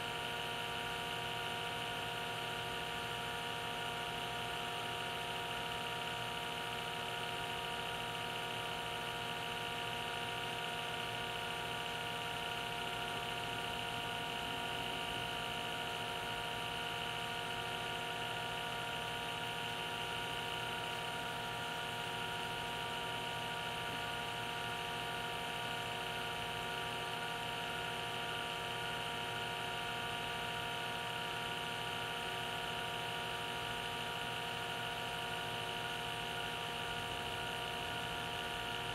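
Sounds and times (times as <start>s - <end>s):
vacuum pump humming: 9.6s - 38.9s.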